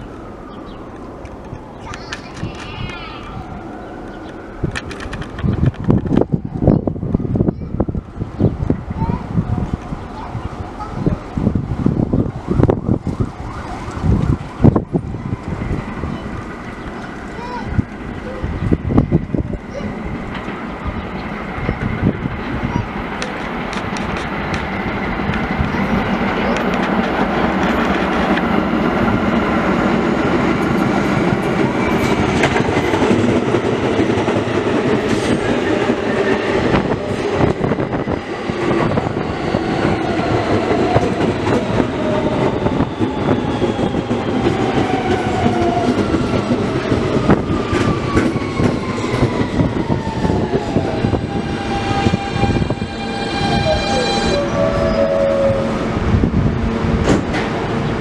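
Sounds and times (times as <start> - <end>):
train rumble: 0.0 - 58.0
wheels clacking over rail joints: 4.0 - 6.4, 19.6 - 37.4
train motor whine: 47.3 - 57.6.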